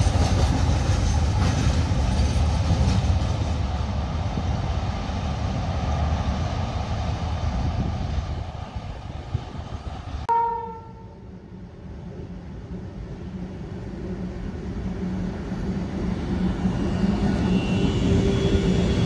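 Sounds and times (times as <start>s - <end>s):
freight train rumbling on rails: 0.0s - 19.0s
train horn: 10.3s - 11.4s.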